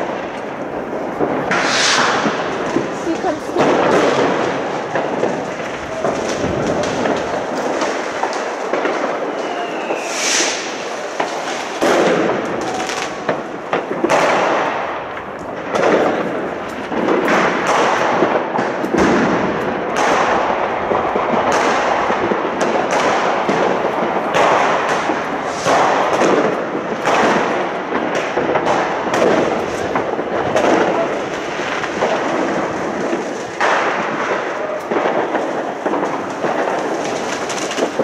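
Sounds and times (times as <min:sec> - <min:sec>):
rising firework whistle: 0:00.0 - 0:14.3
fireworks bangs and crackles: 0:00.0 - 0:38.0.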